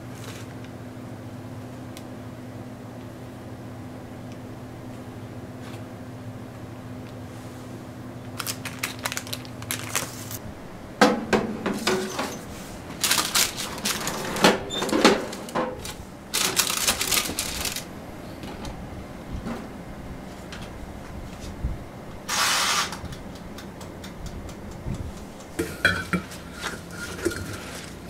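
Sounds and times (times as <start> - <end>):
low steady hum: 0.0 - 22.3, 23.0 - 28.0.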